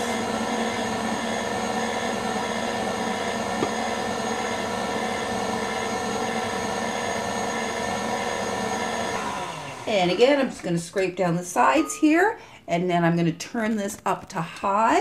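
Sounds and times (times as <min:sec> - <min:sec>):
electric stand mixer whisking: 0:00.0 - 0:10.7.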